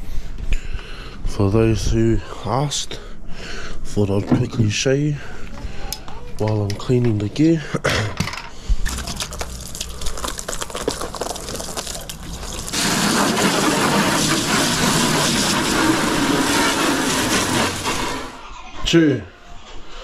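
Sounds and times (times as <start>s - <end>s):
water gushing into bucket: 8.9s - 18.4s.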